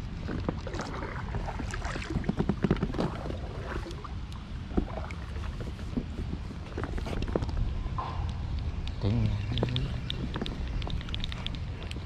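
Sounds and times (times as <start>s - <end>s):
oars splashing: 0.0s - 7.6s
wind rumble on microphone: 0.0s - 12.0s.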